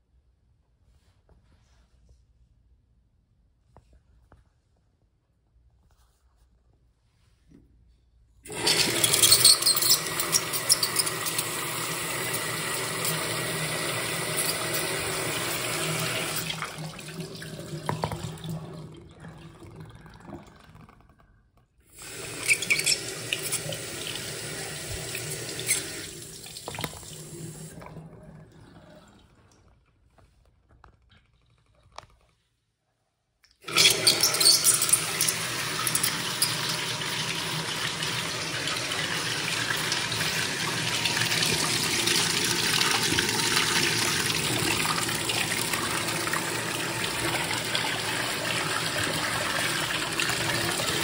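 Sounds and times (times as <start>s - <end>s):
toilet flushing water rushing: 8.5s - 21.2s, 21.9s - 29.7s, 33.6s - 51.0s
water trickling: 22.0s - 29.8s.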